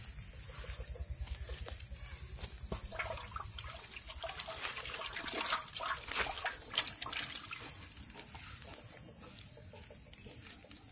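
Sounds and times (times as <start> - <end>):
water splashing in metal pot: 2.9 - 8.0.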